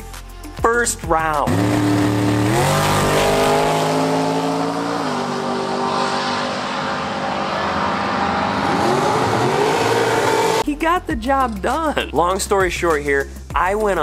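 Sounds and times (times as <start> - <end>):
dragster engines at full throttle: 1.5 - 10.6.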